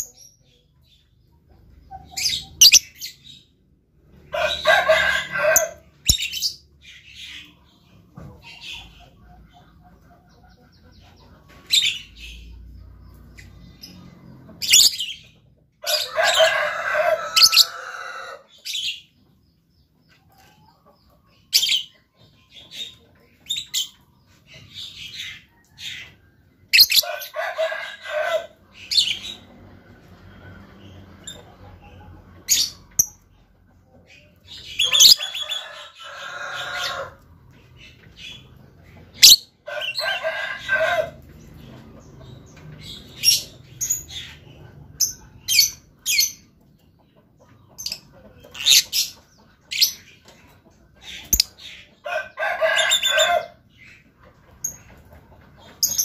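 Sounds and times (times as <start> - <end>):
bird high chirps: 1.9 - 3.2.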